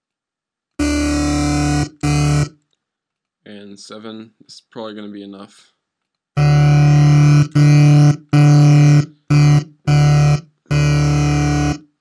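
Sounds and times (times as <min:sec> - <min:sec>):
filtered synthesizer bass notes: 0:00.8 - 0:02.5, 0:06.4 - 0:12.0.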